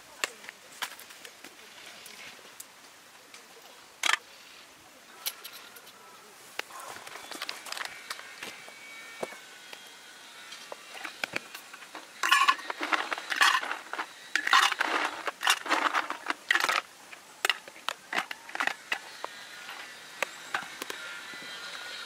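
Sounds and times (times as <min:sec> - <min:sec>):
ice cubes clinking into pitcher: 0:12.2 - 0:19.0.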